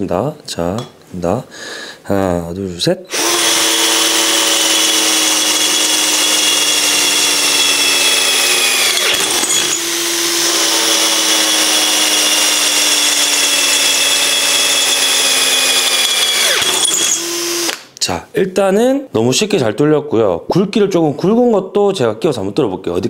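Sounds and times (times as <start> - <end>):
drill motor whine drilling metal: 3.1 - 17.8.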